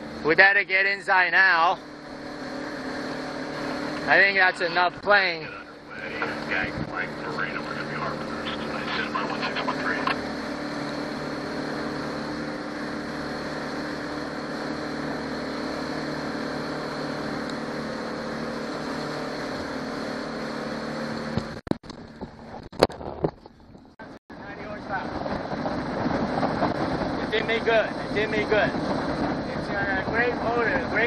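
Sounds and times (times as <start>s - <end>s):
outboard engine running: 0.0s - 31.0s
wind: 0.0s - 31.0s.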